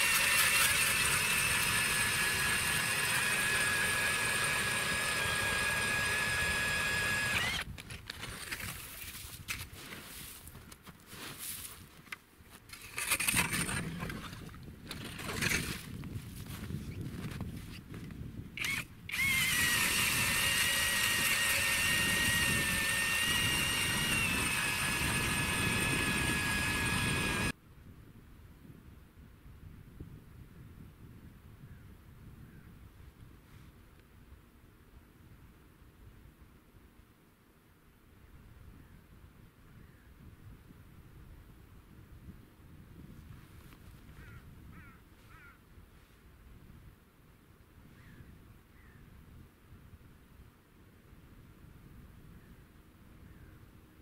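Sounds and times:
cordless drill whining: 0.0s - 7.8s, 18.6s - 27.6s.

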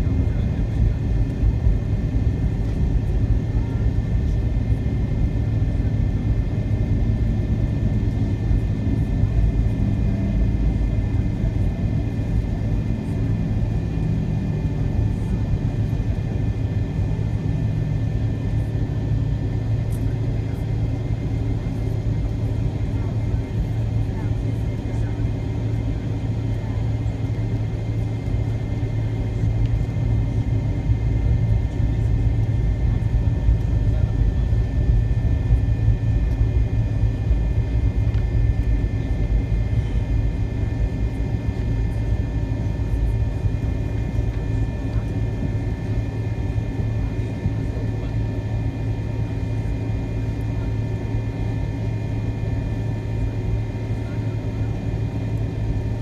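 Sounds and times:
aircraft cabin rumble and hum: 0.0s - 56.0s
jet engine whine: 0.0s - 56.0s.

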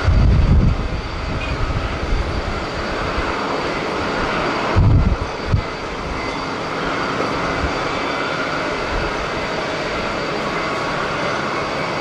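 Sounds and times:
wind buffeting microphone: 0.0s - 8.1s
jet engines rushing: 0.0s - 12.0s.

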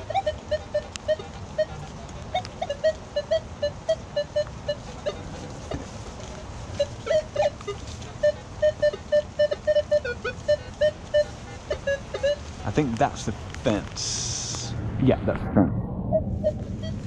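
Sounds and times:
metal detector low beeps: 0.0s - 5.2s, 6.8s - 12.4s.

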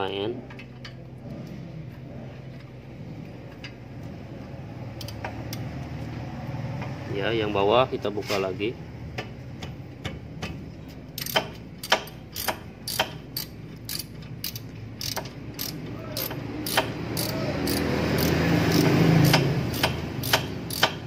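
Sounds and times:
ratchet wrench clicking: 5.0s - 5.6s, 11.2s - 21.0s.

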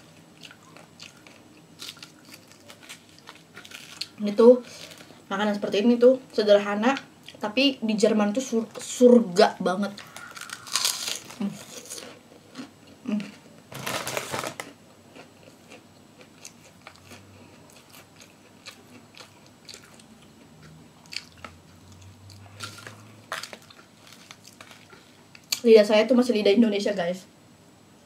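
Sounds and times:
person chewing crunchy food: 0.0s - 5.2s, 10.0s - 25.6s.

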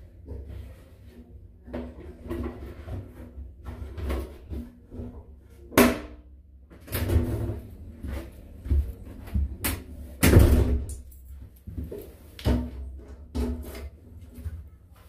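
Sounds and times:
door and metal drop box banging: 10.2s - 10.9s.

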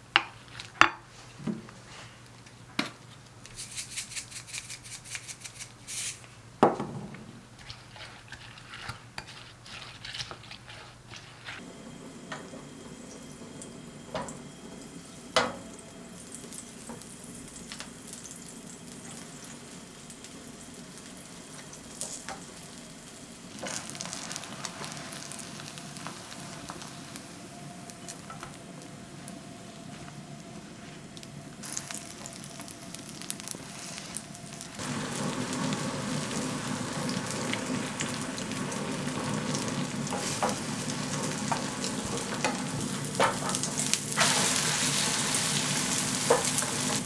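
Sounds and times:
spoon scraping glass bowl: 7.6s - 11.6s
butter sizzling in a frying pan: 11.6s - 28.9s, 31.2s - 47.0s.

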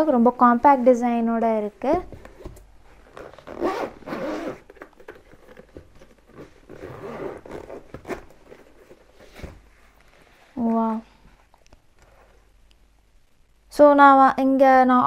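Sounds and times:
zipper rasping open: 2.3s - 9.6s.

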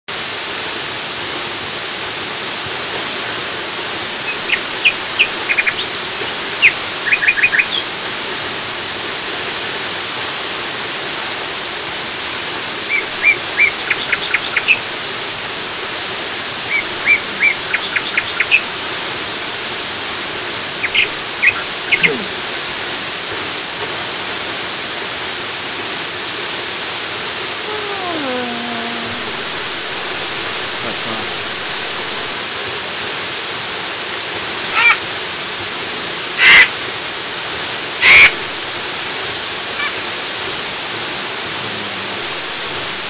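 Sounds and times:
waterfall rushing: 0.2s - 43.0s
bird chirping: 4.2s - 5.9s, 16.7s - 18.6s, 20.8s - 22.3s, 29.2s - 32.3s.

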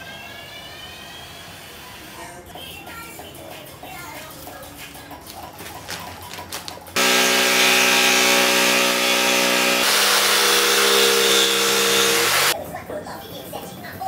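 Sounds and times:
jigsaw cutting wood: 7.0s - 12.6s.

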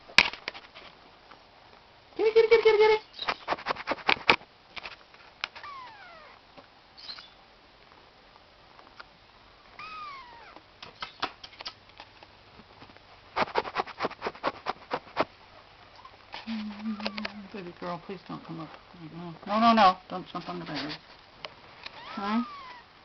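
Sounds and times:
cat meowing: 5.6s - 6.4s, 9.8s - 10.6s, 21.9s - 22.9s.

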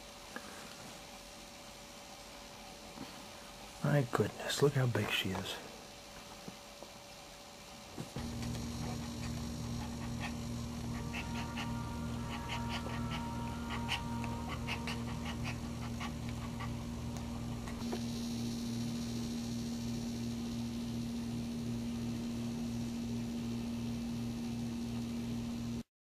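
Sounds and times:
low hum: 8.1s - 25.8s
dog panting: 8.2s - 17.8s.

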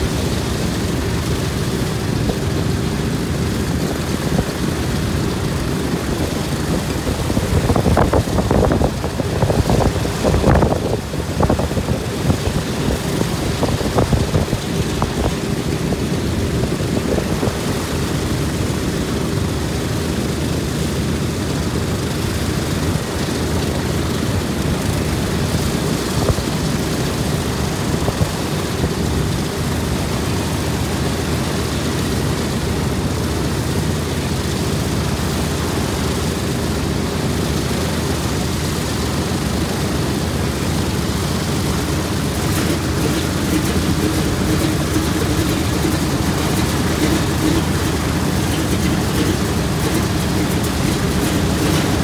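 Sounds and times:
propeller thrum: 0.0s - 52.0s
radial engines idling: 0.0s - 52.0s.

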